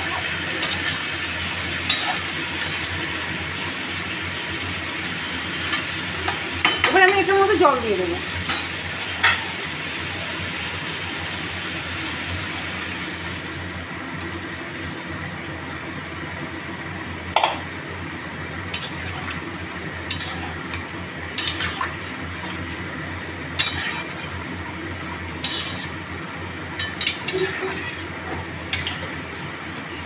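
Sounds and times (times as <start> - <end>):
spoon stirring and clinking on pan: 1.9 - 2.8, 20.1 - 20.6, 21.4 - 21.8, 23.6 - 24.2, 25.4 - 26.0, 26.8 - 28.0, 28.7 - 29.2.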